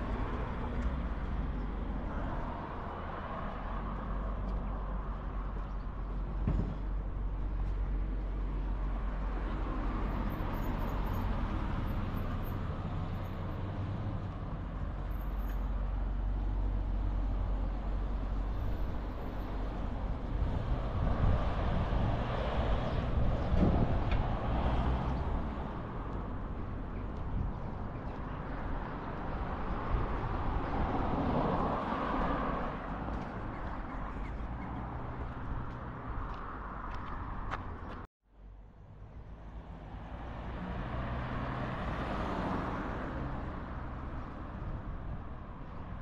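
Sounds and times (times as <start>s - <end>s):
cars driving past: 0.0s - 38.1s, 38.8s - 46.0s
low traffic rumble: 0.0s - 46.0s
thump: 6.4s - 6.9s.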